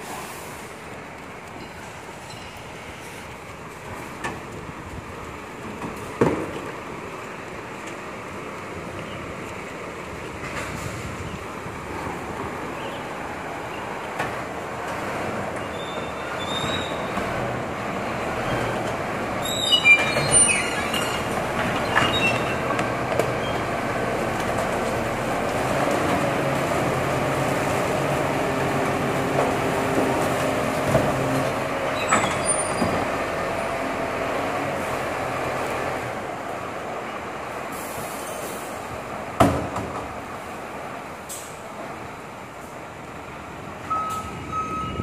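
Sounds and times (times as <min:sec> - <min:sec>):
high metallic squeals: 0:19.4 - 0:22.7.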